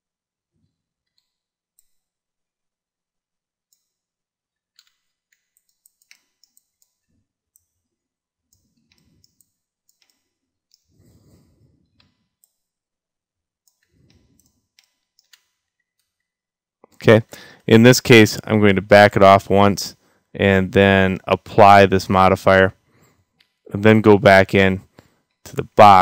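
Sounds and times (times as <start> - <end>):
mouse and keyboard clicking: 4.8 - 7.0, 13.7 - 16.1.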